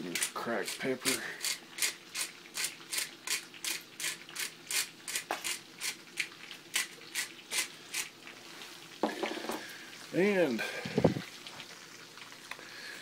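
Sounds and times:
pepper grinder crunching: 0.0 - 8.1.

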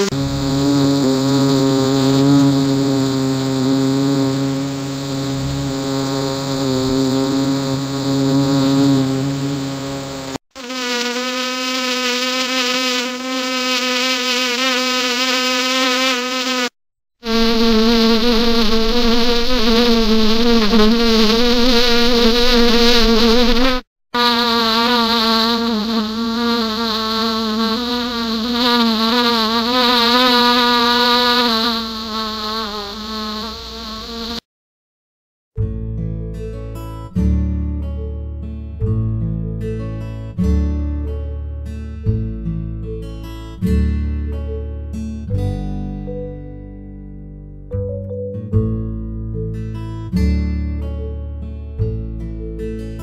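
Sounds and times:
honey bee buzzing in flight: 0.0 - 34.4.

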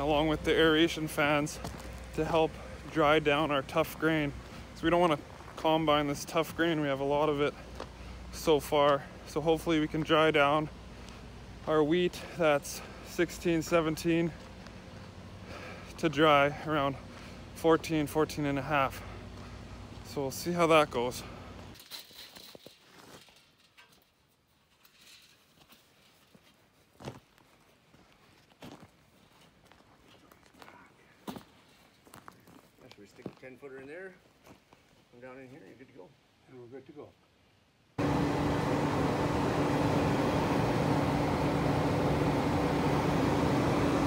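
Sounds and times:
faint footsteps: 0.0 - 8.2, 9.9 - 11.7, 12.8 - 16.0, 18.8 - 23.4, 25.5 - 35.1
forced-air heater running: 38.0 - 44.0.

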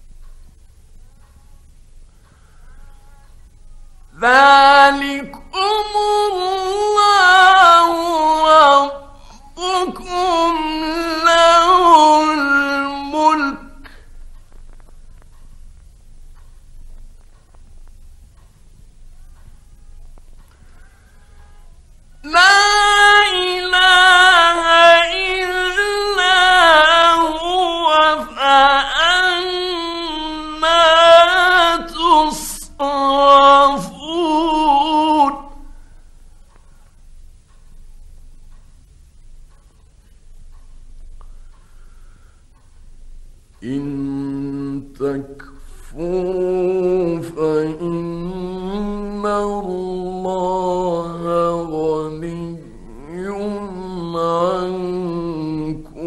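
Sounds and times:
man chanting melodically: 2.1 - 14.7, 19.1 - 36.5, 43.5 - 56.0.

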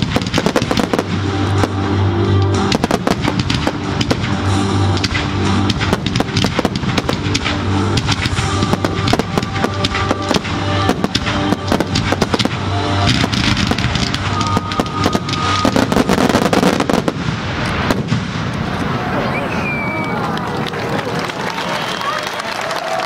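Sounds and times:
music playing: 0.0 - 18.1.

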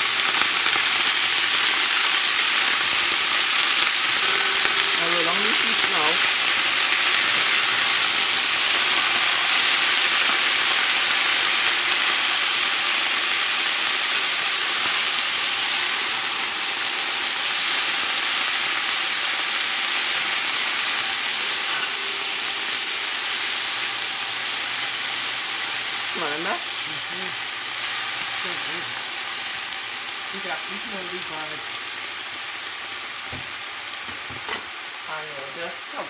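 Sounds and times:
vegetables sizzling in a pot: 0.0 - 36.0
metal spoon stirring: 14.1 - 16.0, 21.4 - 22.0.

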